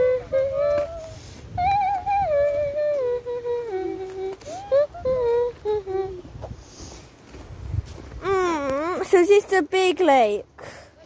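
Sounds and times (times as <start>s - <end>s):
person humming a tune: 0.0s - 6.4s.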